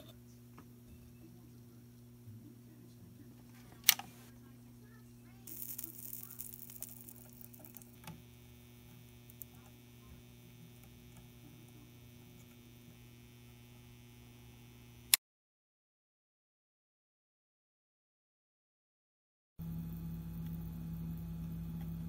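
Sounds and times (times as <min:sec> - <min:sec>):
mains hum: 0:00.0 - 0:15.2, 0:19.6 - 0:22.0
solder sizzling: 0:03.4 - 0:15.2.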